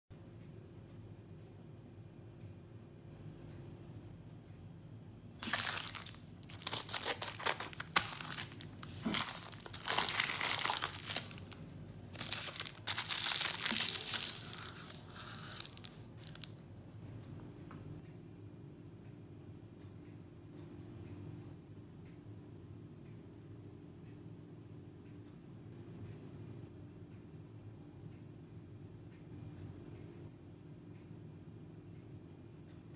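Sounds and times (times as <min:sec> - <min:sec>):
plastic packaging crinkling and tearing: 0:05.4 - 0:16.5.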